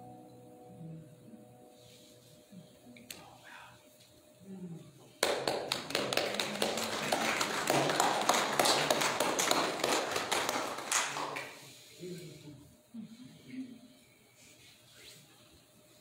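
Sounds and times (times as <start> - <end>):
congregation clapping: 5.2 - 11.8.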